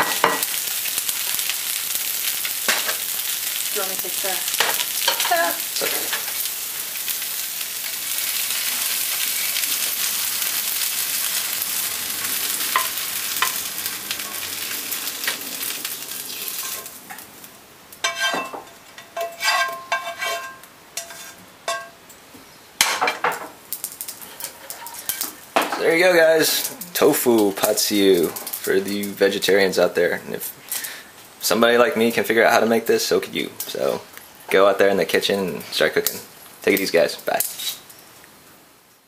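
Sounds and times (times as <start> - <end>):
food sizzling in a frying pan: 0.0 - 39.0
spatula scraping pan and plate: 18.0 - 22.0, 24.3 - 25.3.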